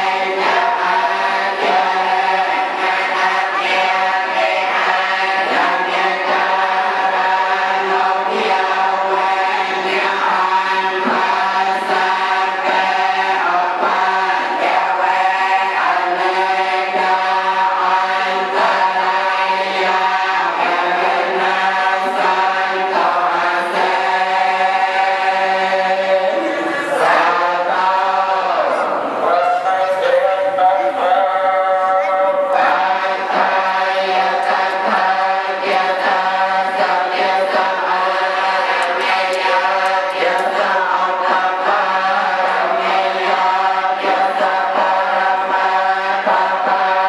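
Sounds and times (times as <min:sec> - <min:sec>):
monks chanting in unison: 0:00.0 - 0:47.0.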